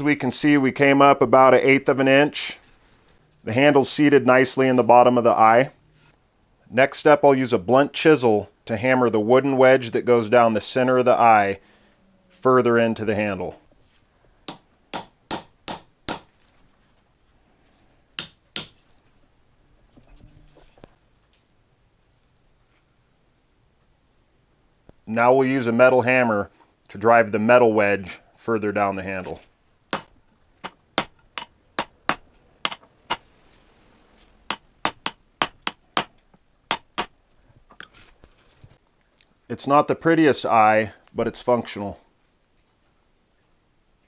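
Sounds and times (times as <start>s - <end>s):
hammer striking steel chisel: 14.5s - 16.3s, 18.2s - 18.8s, 29.9s - 33.2s, 34.5s - 37.1s.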